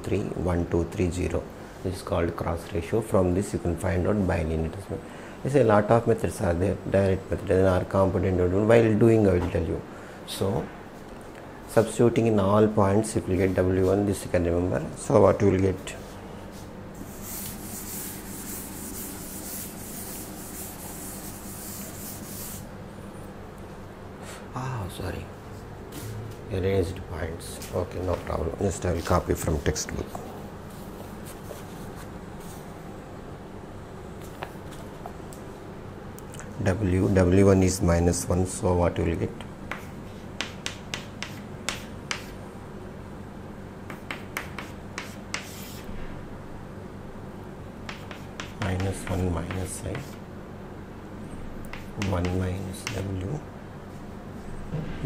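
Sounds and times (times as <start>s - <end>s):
eraser rubbing on chalkboard: 16.5s - 22.7s, 39.7s - 42.4s, 43.9s - 45.9s, 47.9s - 50.2s, 51.7s - 53.1s.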